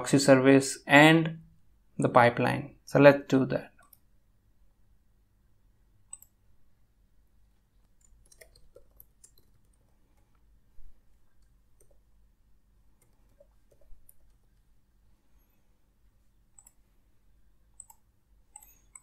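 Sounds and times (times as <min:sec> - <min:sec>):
low steady hum: 0:00.0 - 0:19.0
mouse clicks: 0:06.1 - 0:06.4, 0:16.5 - 0:16.8, 0:17.8 - 0:19.0
keyboard keystrokes: 0:07.9 - 0:09.8.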